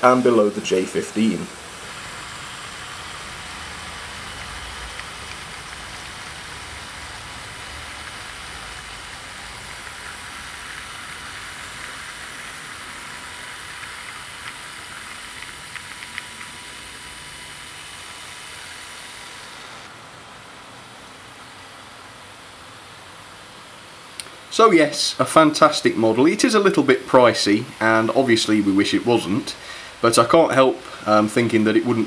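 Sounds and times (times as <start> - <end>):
model train wheels rolling: 0.0 - 19.9.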